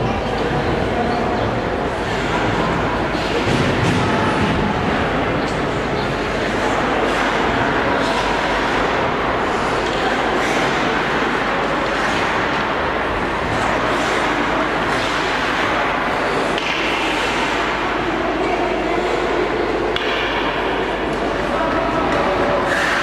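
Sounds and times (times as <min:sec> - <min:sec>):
loud rink noise: 0:00.0 - 0:23.0
muffled voices: 0:00.0 - 0:23.0
skate blades scraping ice: 0:13.5 - 0:17.7.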